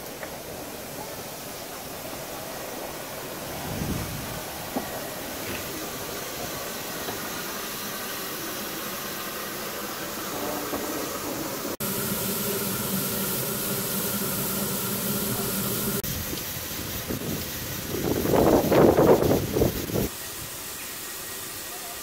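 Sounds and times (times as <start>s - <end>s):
steam locomotive hissing: 0.0s - 22.0s
steady hum: 11.8s - 16.0s.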